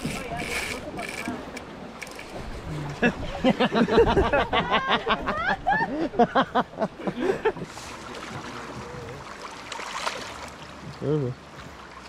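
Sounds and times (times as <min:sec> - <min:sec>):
water splashes: 0:07.3 - 0:12.0
river water rushing: 0:07.6 - 0:12.0.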